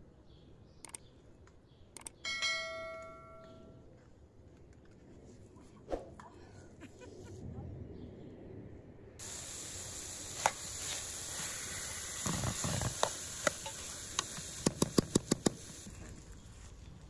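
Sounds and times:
chicken sizzling in a pan: 9.2s - 15.9s.

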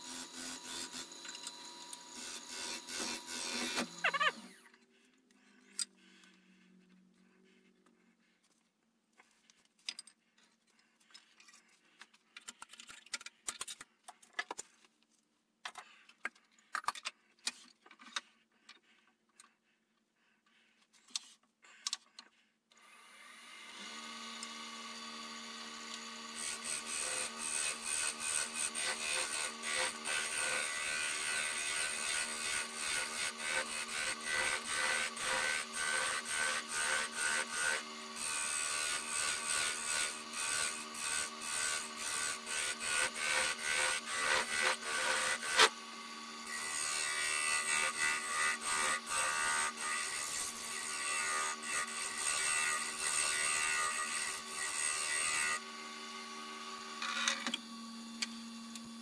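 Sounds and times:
tool rubbing spinning wood: 0.0s - 6.8s, 26.1s - 49.4s
wood lathe humming: 22.8s - 56.9s.

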